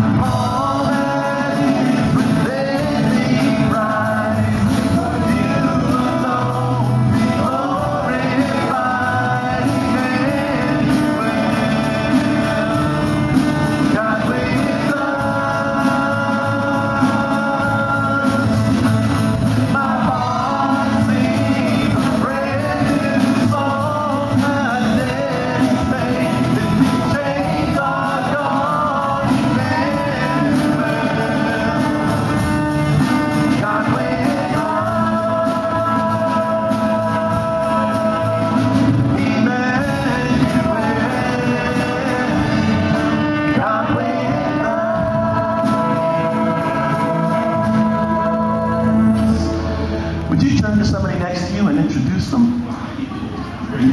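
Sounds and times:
amplified band playing: 0:00.0 - 0:53.9
women singing into microphones: 0:19.6 - 0:49.8.

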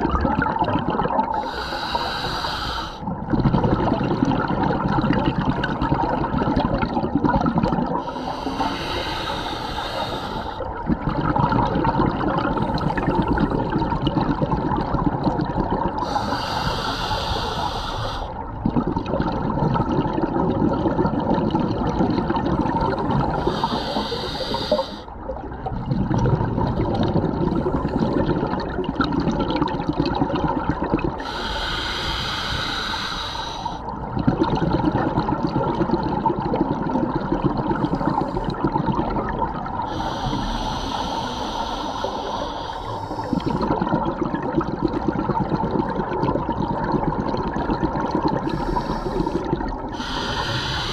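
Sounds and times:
exhaled bubbles rumbling: 0:00.0 - 0:02.0, 0:03.0 - 0:50.9
diver inhaling through regulator: 0:01.3 - 0:03.0, 0:08.0 - 0:10.7, 0:16.0 - 0:18.4, 0:23.2 - 0:25.1, 0:31.2 - 0:33.9, 0:39.8 - 0:43.9, 0:48.3 - 0:50.9.

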